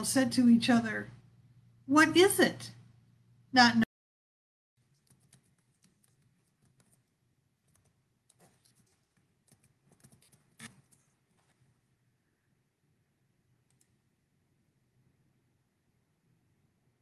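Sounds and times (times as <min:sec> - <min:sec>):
faint small clicks: 0:13.6 - 0:14.0.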